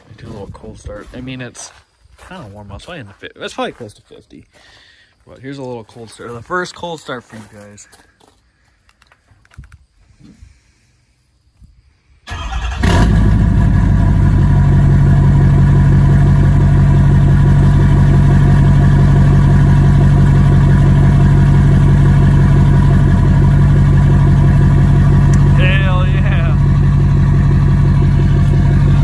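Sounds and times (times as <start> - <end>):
diesel engine cranking and idling: 12.3 - 29.0.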